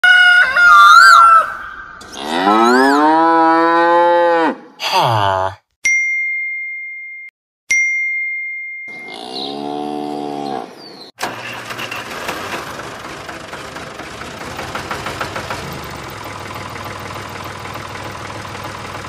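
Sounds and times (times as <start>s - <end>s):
cattle mooing: 2.0s - 5.6s, 9.0s - 10.8s
bell-like dings: 5.9s - 9.2s.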